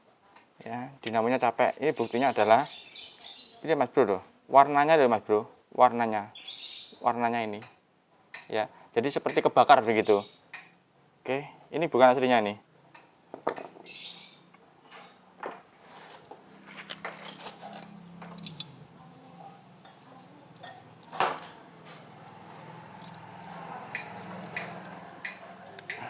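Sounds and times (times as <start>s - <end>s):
metal parts clicking and tapping: 17.0s - 18.8s, 19.8s - 26.0s.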